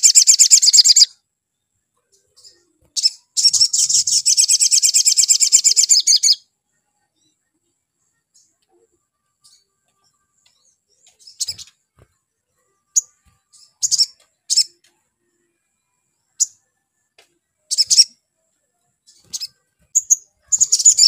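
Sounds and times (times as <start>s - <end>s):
bird chip calls: 0.0s - 1.1s, 3.0s - 6.4s, 19.2s - 21.0s
rapid twittering birdsong: 0.0s - 21.0s.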